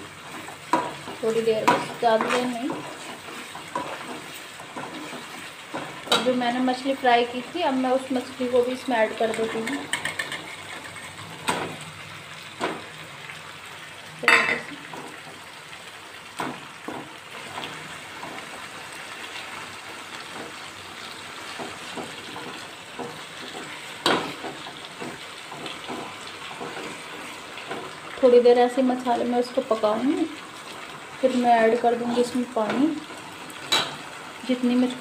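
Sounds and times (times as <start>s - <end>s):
gravy sizzling and bubbling: 0.0s - 35.0s
utensils knocking against pan: 0.7s - 2.8s, 9.2s - 11.8s, 14.2s - 15.1s.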